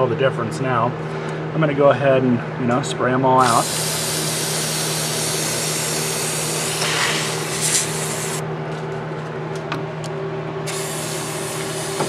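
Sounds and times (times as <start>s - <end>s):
aerosol spray can hissing: 3.4s - 8.4s, 10.7s - 12.0s.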